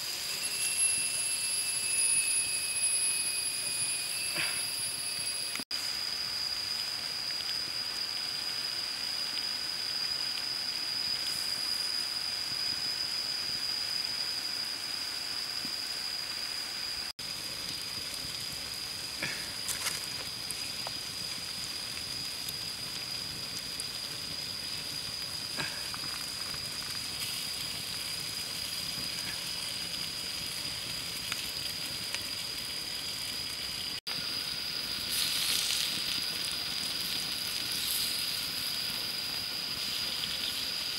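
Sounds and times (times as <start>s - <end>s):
squid sizzling: 0.0s - 13.7s, 14.3s - 40.9s
steady high-pitched tone: 0.0s - 17.1s
fire crackles: 0.0s - 40.9s.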